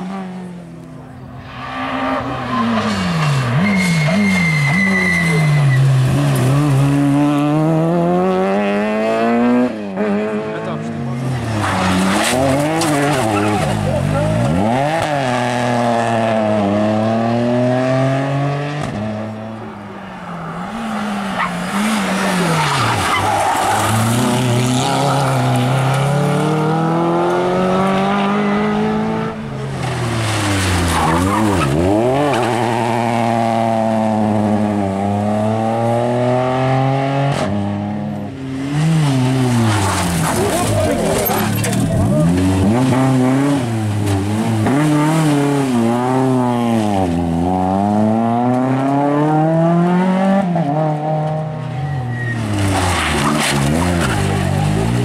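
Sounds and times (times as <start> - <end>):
rally car engines revving: 0.0 - 55.0
tyre squeal: 1.4 - 6.6, 20.6 - 25.5, 51.6 - 54.4.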